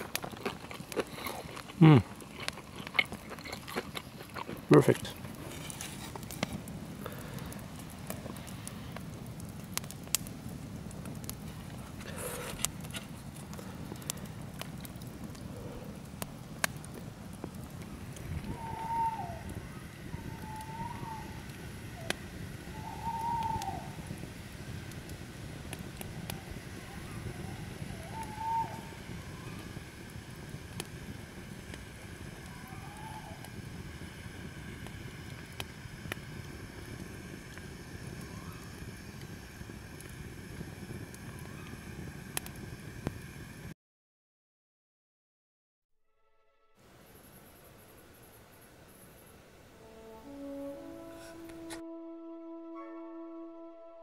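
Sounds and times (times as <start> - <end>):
campfire crackling and popping: 0.0 - 43.7
bird calling: 18.4 - 24.0, 27.0 - 29.0.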